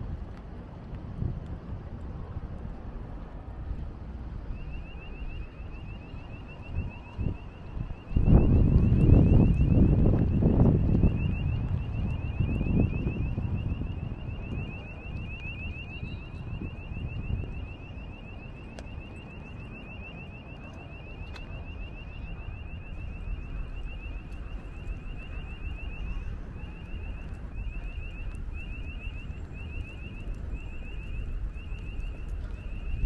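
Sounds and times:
wind rumbling on microphone: 0.0s - 33.0s
electronic alarm chirping: 4.4s - 33.0s.

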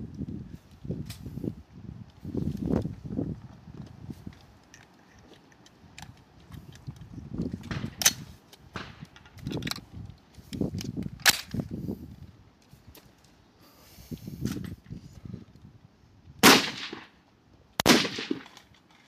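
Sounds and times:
wind rumbling on microphone: 0.0s - 18.4s
distant gunshots: 16.4s - 17.1s, 17.8s - 18.5s
sharp rifle shots: 16.4s - 17.2s, 17.8s - 18.5s.

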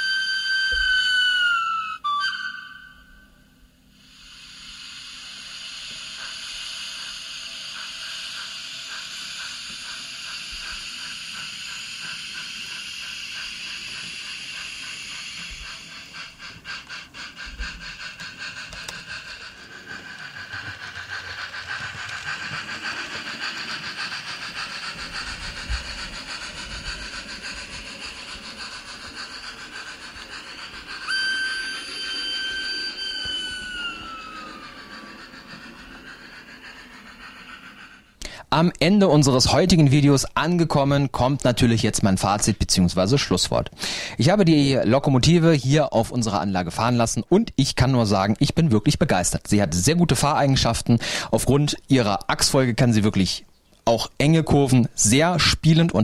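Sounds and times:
steam whistle: 0.0s - 22.8s, 24.0s - 38.0s
quick steam chuffs: 0.0s - 56.0s
steam hiss: 0.0s - 56.0s.

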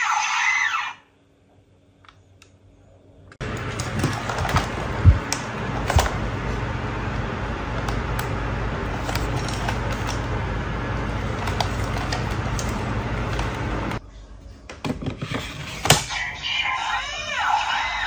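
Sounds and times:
low hum: 1.1s - 14.6s.

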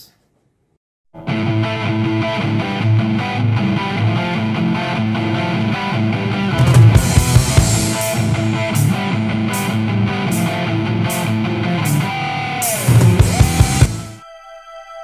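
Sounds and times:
rock background music: 1.2s - 14.2s
cymbal hits: 6.6s - 9.8s.

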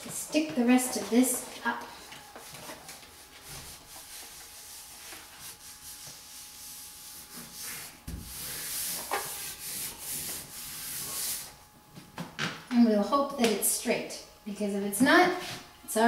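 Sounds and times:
hands rubbing decal on wall: 2.2s - 11.6s.

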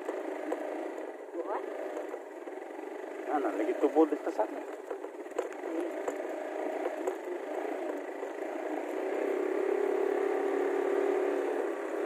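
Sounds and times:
motorcycle engine droning: 0.0s - 12.0s.

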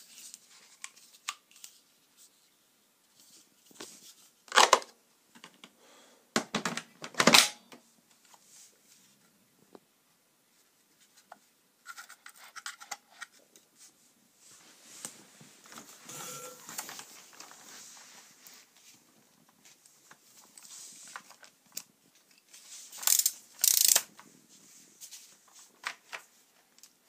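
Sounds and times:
hard plastic parts clacking: 4.5s - 5.7s.

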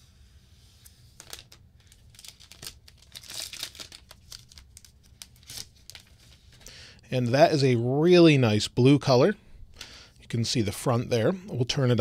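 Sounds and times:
plastic film peeling: 1.2s - 6.6s.

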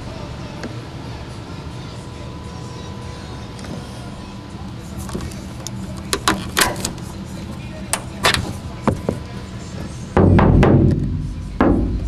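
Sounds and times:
sharp clicks and knocks: 5.1s - 7.0s.

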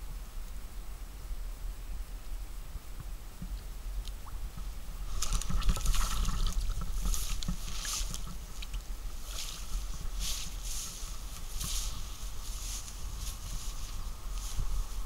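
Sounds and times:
fish splashing at water surface: 5.1s - 8.8s.

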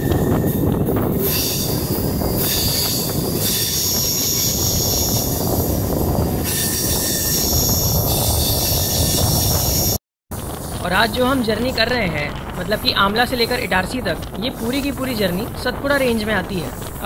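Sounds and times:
steel wheels squealing: 0.0s - 11.5s
train rumbling on rails: 0.0s - 17.0s.

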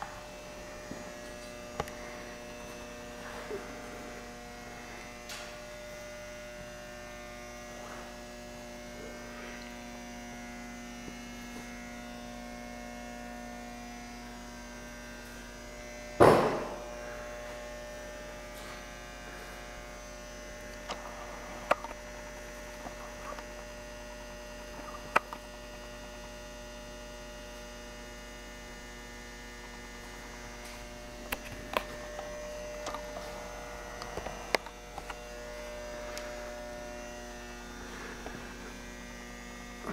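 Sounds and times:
electrical hum: 0.0s - 39.9s
loud thump: 16.2s - 16.8s.

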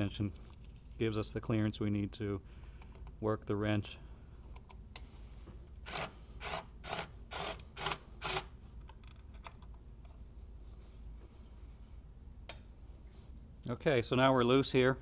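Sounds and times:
ratchet wrench ratcheting: 5.9s - 8.5s.

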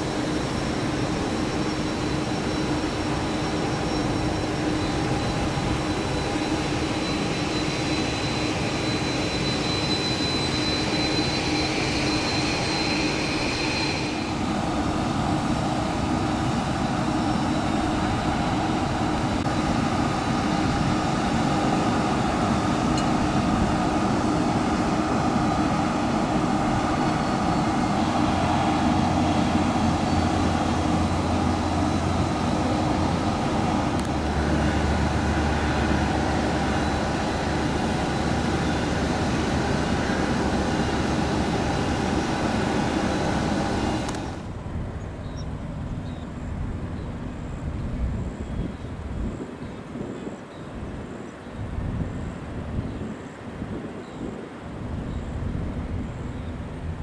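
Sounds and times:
deep drone: 0.0s - 45.5s
jet engines whining and rumbling: 0.0s - 57.0s.

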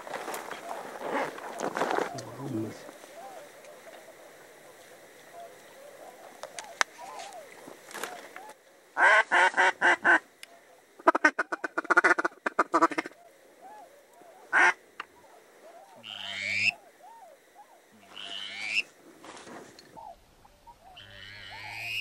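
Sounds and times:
softer repeated calls: 15.7s - 18.9s, 19.9s - 22.0s
duck quacking: 16.0s - 16.8s, 18.1s - 18.8s, 20.0s - 22.0s
rising squeal: 21.0s - 22.0s.

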